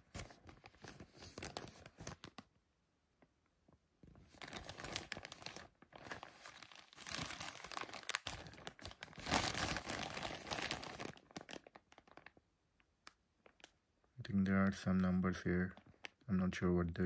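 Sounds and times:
plastic bag crinkling: 0.0s - 2.4s, 4.1s - 13.8s, 15.0s - 16.5s.

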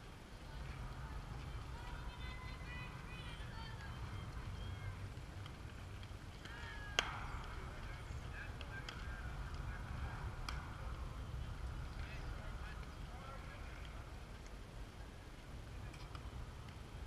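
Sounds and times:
wind rumbling on microphone: 0.0s - 17.0s
bat cracking ball: 6.4s - 7.8s.

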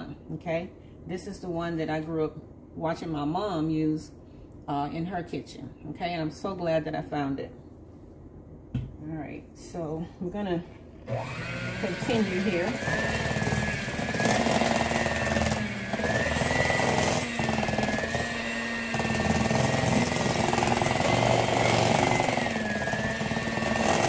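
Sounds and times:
electric hand mixer whining: 11.1s - 24.0s.

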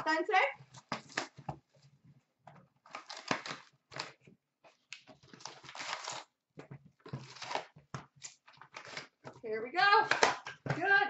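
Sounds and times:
foil packs crinkling: 2.8s - 4.2s, 4.8s - 6.4s.

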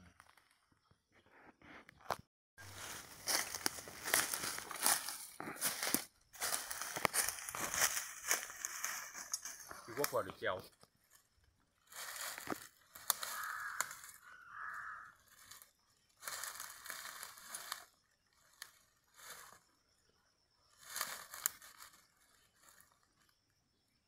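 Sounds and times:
dry leaves crunching: 2.6s - 19.7s, 20.7s - 23.3s
strap rustling and crinkling: 2.7s - 11.2s, 11.8s - 14.2s, 15.2s - 19.6s, 20.7s - 23.3s.

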